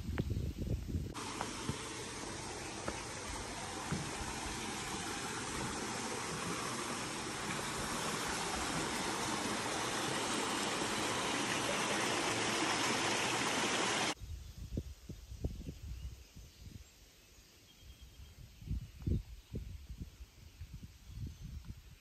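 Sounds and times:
stream running over rocks: 1.2s - 14.2s.

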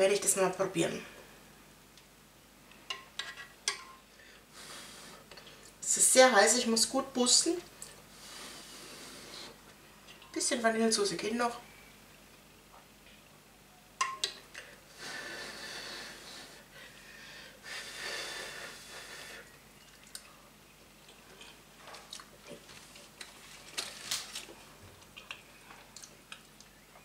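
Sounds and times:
quiet chewing: 19.4s - 27.0s.

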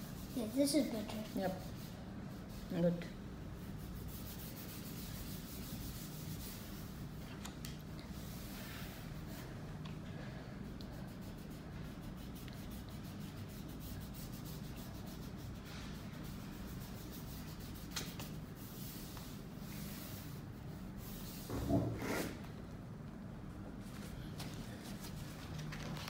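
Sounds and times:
hand rubbing pastel on paper: 0.0s - 7.2s, 8.1s - 9.5s, 10.6s - 22.4s
steady low hum: 0.0s - 26.0s.

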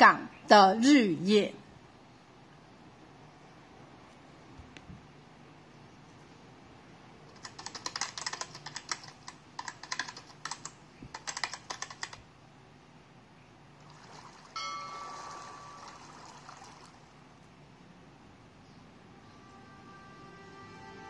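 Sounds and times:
keyboard typing clicks: 7.3s - 12.2s
steady tone: 14.6s - 16.1s.

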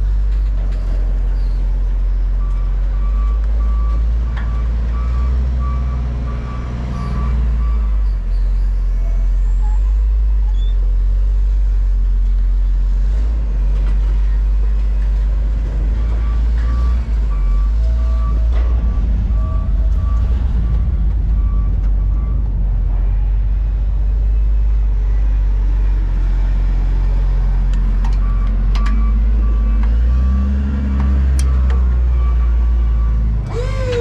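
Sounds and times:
heavy engine rumbling: 0.0s - 34.0s
vehicle backup alarm beeping: 15.9s - 22.6s, 28.1s - 34.0s.

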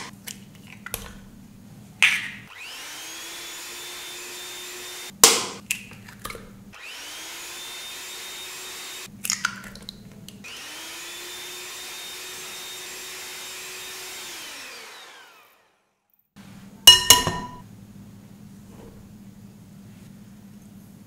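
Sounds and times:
electric hand mixer whining: 2.5s - 5.1s, 6.8s - 9.1s, 10.4s - 15.9s.

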